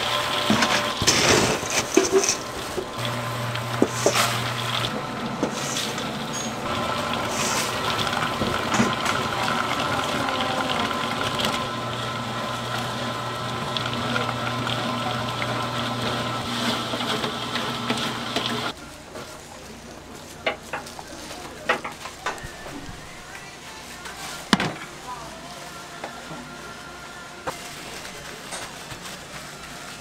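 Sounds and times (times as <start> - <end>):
motor hum: 0.0 - 18.7
nuts scraping and rattling in pan: 0.4 - 2.9.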